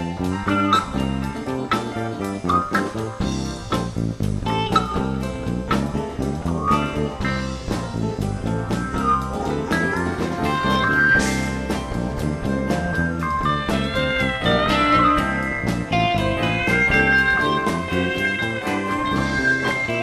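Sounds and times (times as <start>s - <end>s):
drum kit beat: 0.0s - 20.0s
electric bass: 0.0s - 20.0s
sliding guitar lead line: 0.0s - 20.0s.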